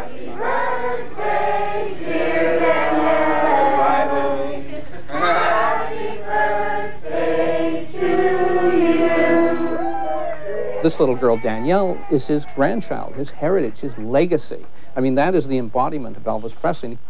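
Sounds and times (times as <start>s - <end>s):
group of voices singing: 0.0s - 10.2s.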